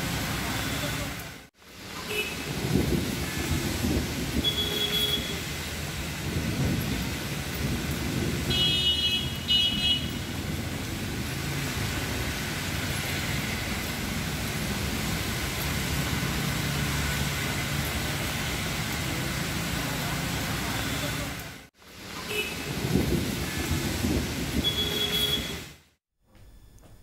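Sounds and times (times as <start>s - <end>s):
rain on city street: 0.0s - 26.0s.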